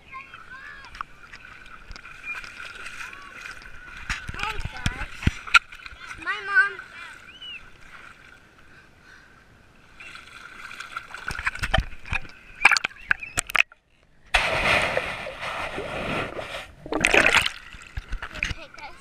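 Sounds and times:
water splashing and sloshing: 0.0s - 9.0s, 9.7s - 19.0s
muffled underwater rush: 14.3s - 18.9s.

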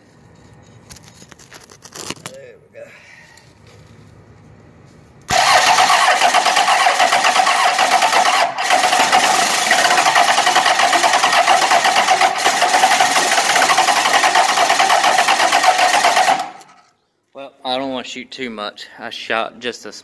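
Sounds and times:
diesel engine cranking on starter: 5.3s - 16.7s.

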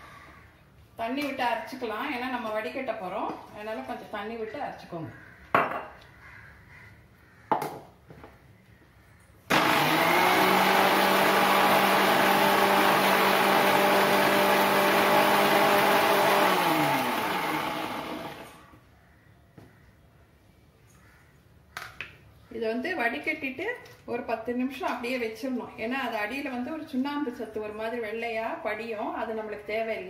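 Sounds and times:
mixer grinder motor running: 9.5s - 18.7s.

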